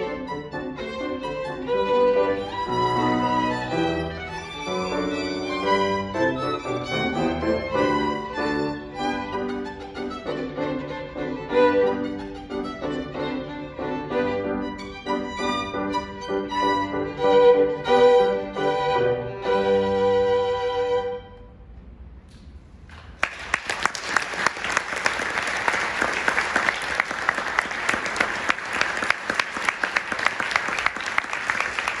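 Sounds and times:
violins and piano playing: 0.0 - 21.7
audience applause: 23.0 - 32.0.

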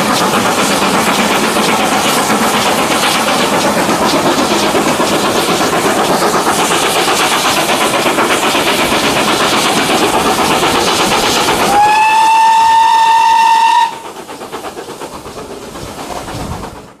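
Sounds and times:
steam locomotive exhaust beat: 0.0 - 17.0
steam whistle blast: 11.7 - 14.0.

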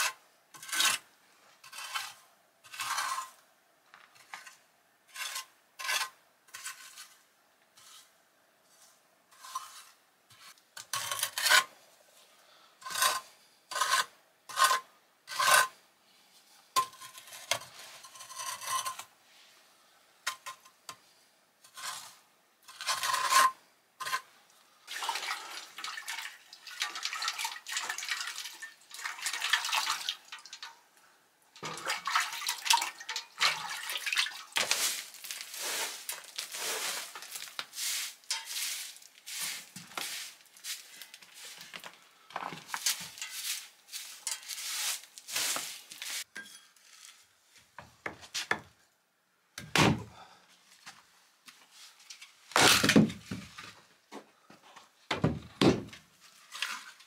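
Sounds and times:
metal scraper rasping on brick: 0.0 - 1.0, 1.6 - 3.4, 9.4 - 11.7, 12.8 - 15.7, 21.7 - 24.3
straw broom sweeping: 33.4 - 41.8, 42.6 - 47.2
dull thump: 55.1 - 56.0.

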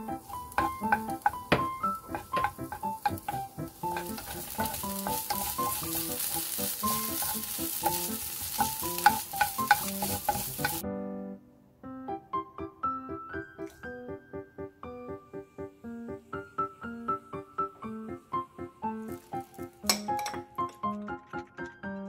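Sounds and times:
onion sizzling in a frying pan: 0.0 - 10.8, 18.8 - 20.3
wooden spatula scraping a pan: 0.0 - 10.8.

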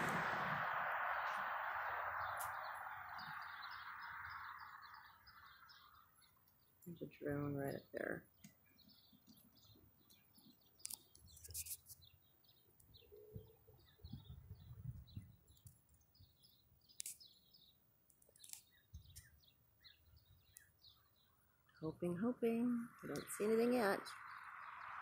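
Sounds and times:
low rumbling: 0.0 - 6.0
faint birds chirping: 0.0 - 25.0.

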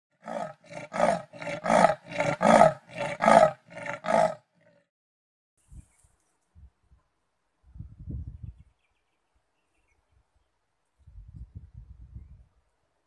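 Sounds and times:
leopard rasping grunts: 0.2 - 4.8.

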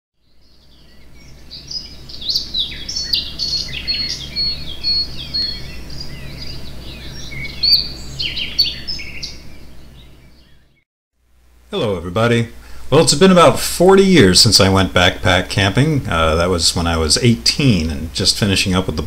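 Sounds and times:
songbirds chirping and singing: 0.2 - 10.8.

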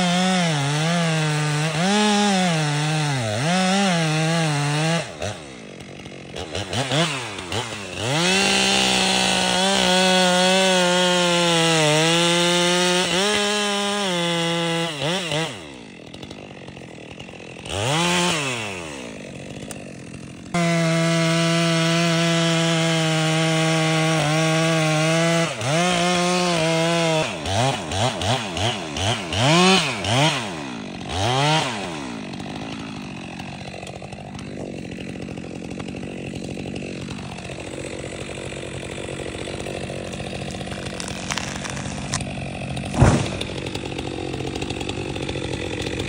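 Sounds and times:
chainsaw revving and idling: 0.0 - 46.0
tree trunk thudding on ground: 40.5 - 44.7.

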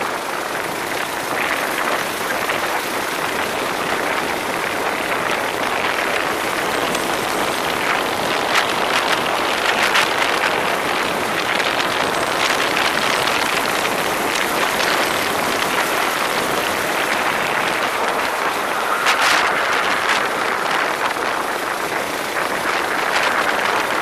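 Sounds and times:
go-kart running and wind rush: 0.0 - 24.0.

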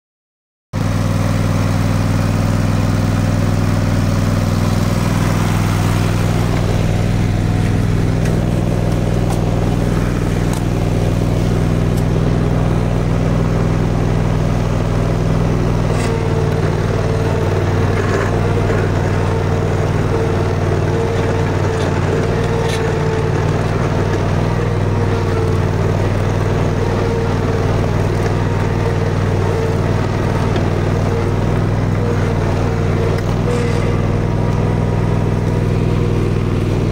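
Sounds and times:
mower engine running under load: 0.8 - 36.9
steady higher whine: 2.0 - 36.9.

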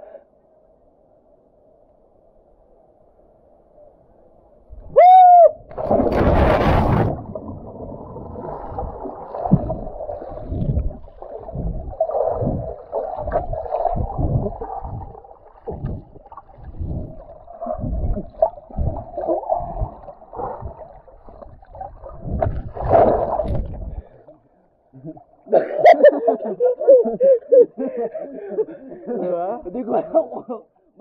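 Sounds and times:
underwater river gurgling: 5.6 - 26.0
low underwater knocks: 5.7 - 17.2.

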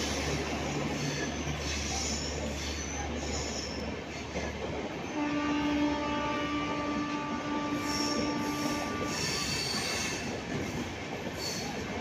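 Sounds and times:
train wheels rumbling on rails: 0.0 - 12.0
train horn: 5.1 - 10.3.

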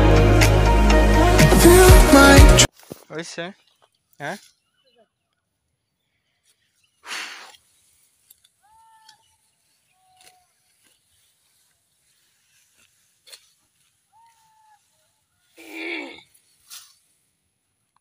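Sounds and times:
net cloth dragged over grass: 10.5 - 17.4.

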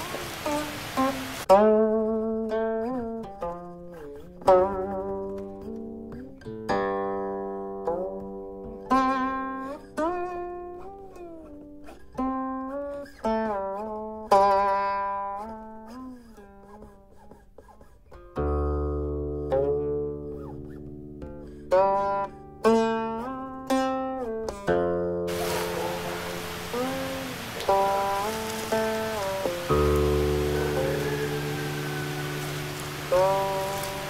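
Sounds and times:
plucked string instrument music: 0.0 - 34.0.

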